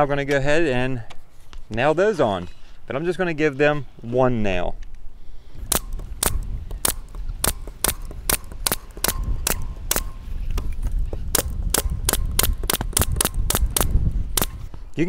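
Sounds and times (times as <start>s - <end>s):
pneumatic nail gun firing: 5.7s - 14.7s.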